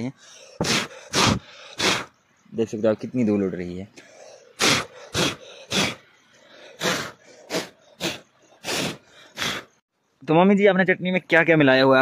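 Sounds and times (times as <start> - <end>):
person blowing puffs of breath: 0.2 - 2.2, 4.0 - 9.8.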